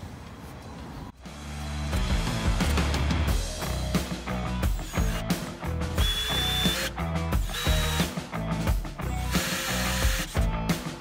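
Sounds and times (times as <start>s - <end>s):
background music with steady beat: 1.1s - 11.0s
cordless drill drilling into steel: 6.0s - 8.1s, 9.1s - 10.4s.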